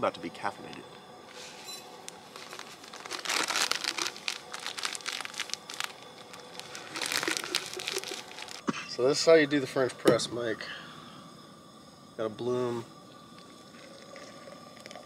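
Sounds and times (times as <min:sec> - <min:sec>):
bag crinkling and rustling: 0:02.1 - 0:08.7.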